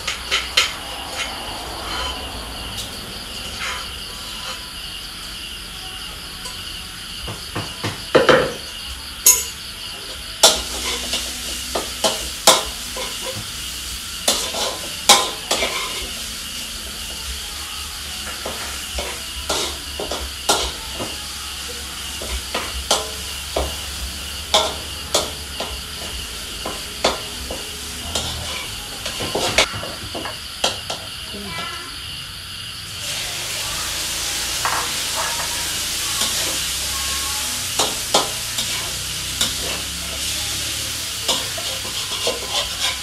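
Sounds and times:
oil sizzling: 0:00.0 - 0:05.6, 0:08.1 - 0:43.0
metal spatula scraping a wok: 0:00.1 - 0:04.8, 0:10.4 - 0:16.3, 0:22.0 - 0:29.7, 0:34.6 - 0:43.0.

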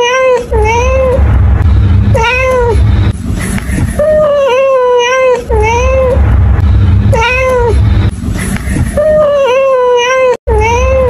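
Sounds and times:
cat meowing loudly: 0:00.0 - 0:01.2, 0:04.1 - 0:06.2, 0:09.0 - 0:11.0.

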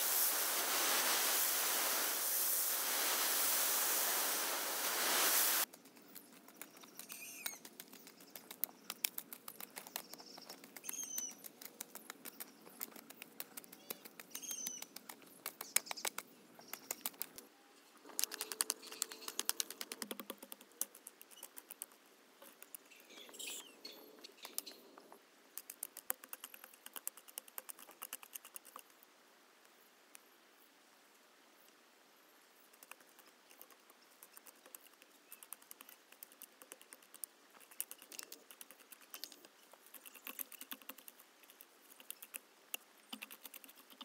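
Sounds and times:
bird chirping: 0:05.5 - 0:12.9, 0:13.6 - 0:17.1, 0:18.3 - 0:19.6, 0:22.8 - 0:25.1.

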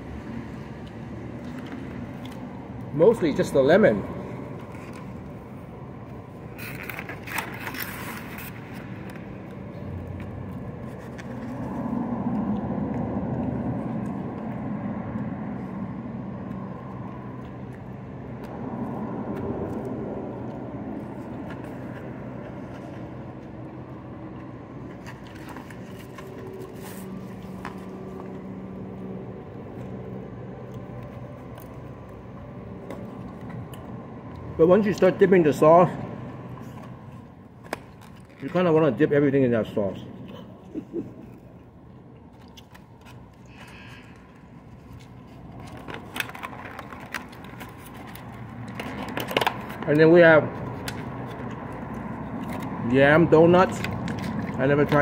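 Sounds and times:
plastic scraping: 0:44.7 - 0:49.9.

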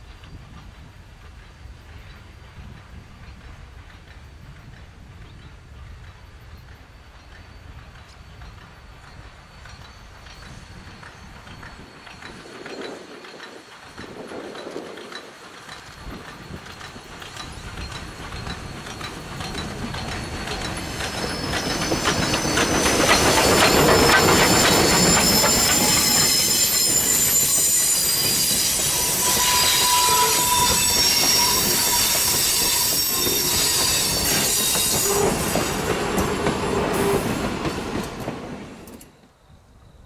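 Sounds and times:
train wheels rolling over rails: 0:00.0 - 0:39.5
high-pitched wheel squeal: 0:20.0 - 0:35.6.

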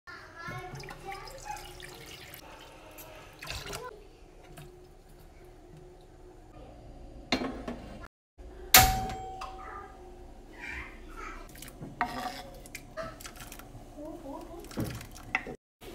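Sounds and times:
metal pot clanking: 0:08.8 - 0:09.7.

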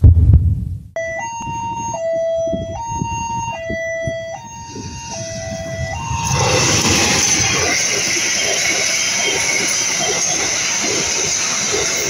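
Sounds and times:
level crossing two-tone alarm: 0:01.0 - 0:12.0
diesel locomotive passing: 0:04.4 - 0:12.0.

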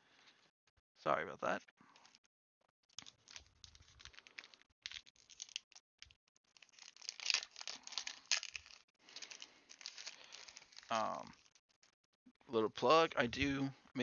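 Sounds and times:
wrapper crinkling and tearing: 0:02.9 - 0:12.0.

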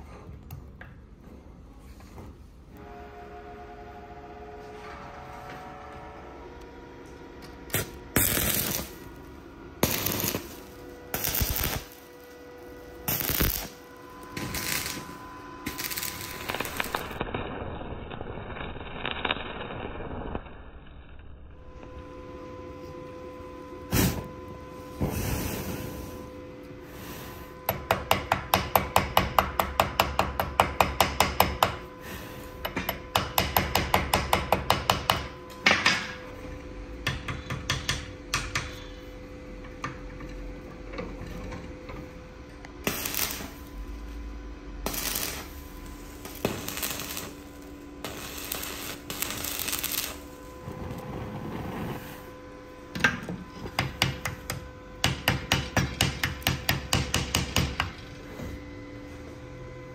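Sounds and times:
hammer striking steel: 0:27.6 - 0:31.9, 0:32.6 - 0:36.3, 0:37.0 - 0:39.0, 0:53.0 - 0:58.0.

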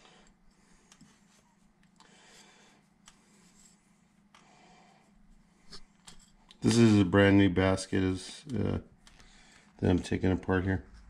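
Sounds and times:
faint clicks of metal parts: 0:00.0 - 0:02.2, 0:02.9 - 0:04.6, 0:05.7 - 0:07.0, 0:08.2 - 0:10.2.

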